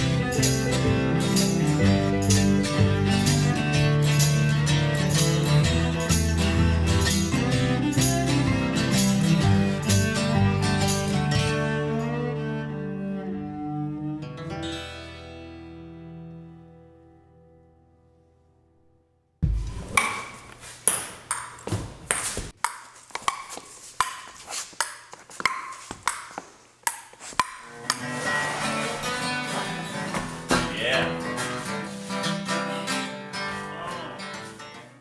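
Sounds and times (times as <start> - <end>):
acoustic guitar picking and strumming: 0.0 - 17.5, 27.3 - 35.0.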